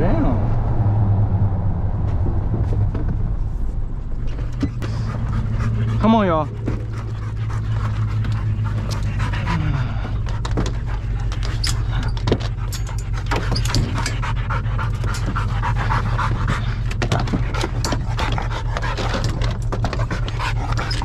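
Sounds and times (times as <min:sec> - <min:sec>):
steady low hum: 0:00.0 - 0:21.0
dogs panting hard: 0:04.3 - 0:21.0
claw clicks and knocks: 0:06.6 - 0:21.0.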